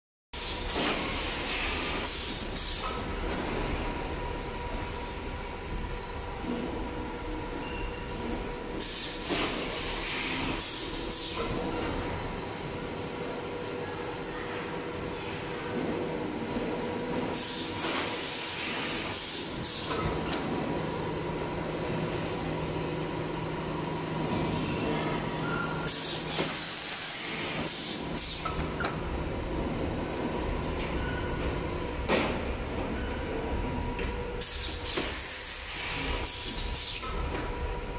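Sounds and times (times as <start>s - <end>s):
pneumatic air releases: 0.4s - 3.1s, 8.8s - 11.9s, 17.3s - 20.2s, 25.8s - 29.0s, 34.4s - 37.4s
machine hum with high whine: 0.4s - 37.9s.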